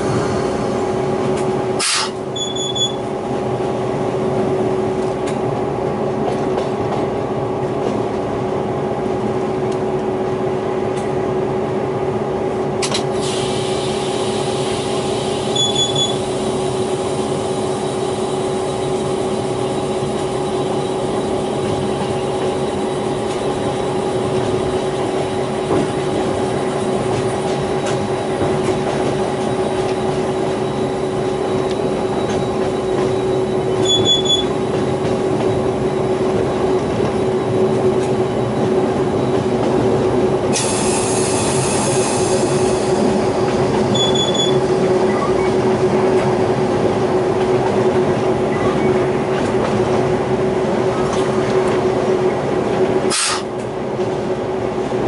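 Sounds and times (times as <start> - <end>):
locomotive engine drone: 0.0 - 55.0
wheels rumbling on rail: 0.0 - 55.0.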